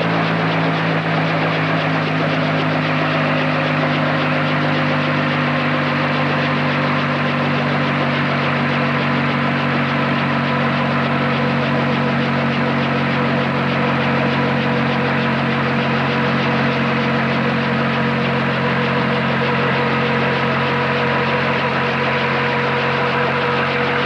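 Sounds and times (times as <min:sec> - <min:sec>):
helicopter idling: 0:00.0 - 0:24.0.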